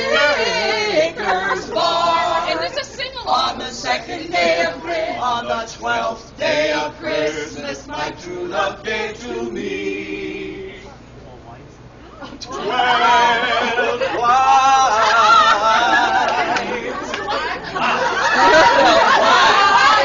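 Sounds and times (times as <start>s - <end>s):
carolers singing in harmony: 0.0s - 10.8s.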